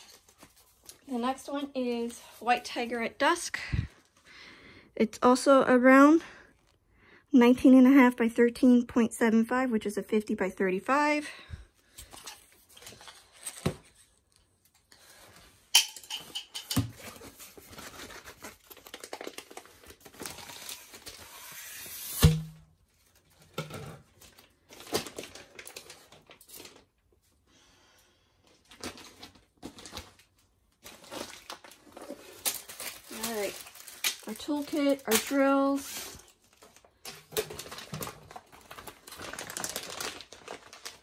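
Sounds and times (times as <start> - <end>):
packaging rustling and tearing: 0.0 - 2.6, 16.9 - 22.3, 24.0 - 27.0, 28.5 - 41.0.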